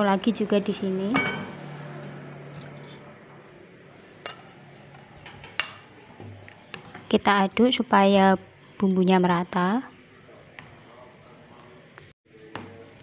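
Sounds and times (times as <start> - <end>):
kitchen utensils and bowls clinking: 1.1 - 3.3, 4.2 - 7.2.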